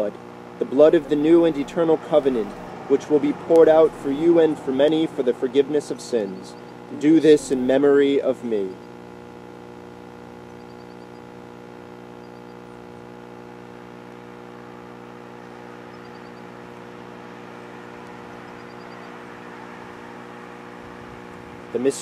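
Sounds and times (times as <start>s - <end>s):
low machine hum: 0.0s - 22.0s
faint high chirps: 10.5s - 11.3s, 12.2s - 12.7s, 15.8s - 16.6s, 18.1s - 19.2s.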